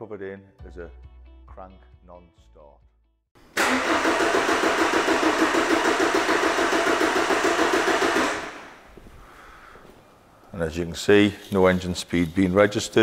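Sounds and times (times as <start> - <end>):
diesel engine cranking: 3.6 - 8.8.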